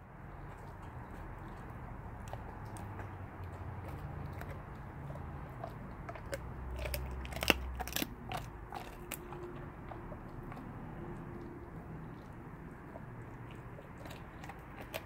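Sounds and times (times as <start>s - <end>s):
dog chewing bones: 0.0s - 15.0s
bones cracking: 0.7s - 10.7s.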